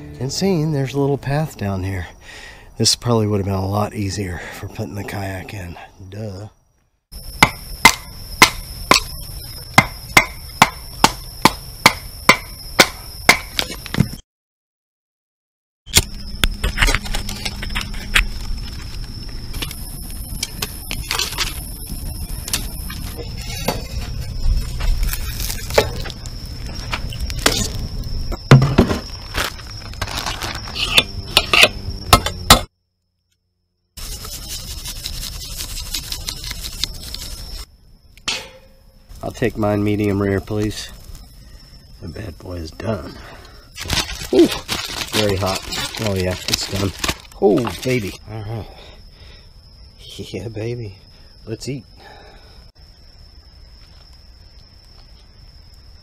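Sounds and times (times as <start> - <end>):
night insects trilling: 0.0 - 14.2, 16.0 - 56.0
wood being chopped: 7.4 - 9.1, 9.8 - 14.1
plastic bag rustling: 28.9 - 30.8, 43.8 - 48.1.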